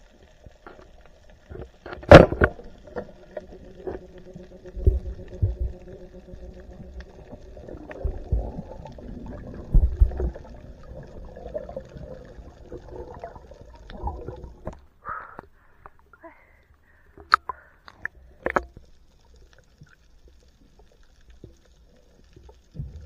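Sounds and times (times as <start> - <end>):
faint steady hum: 0.0 - 23.0
water splashing: 0.7 - 14.9
dull underwater thumps and knocks: 9.7 - 10.4.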